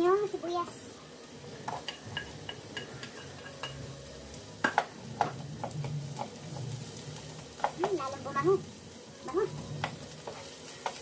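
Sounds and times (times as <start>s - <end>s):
onion sizzling in a frying pan: 0.0s - 11.0s
wooden spatula scraping a pan: 9.5s - 11.0s.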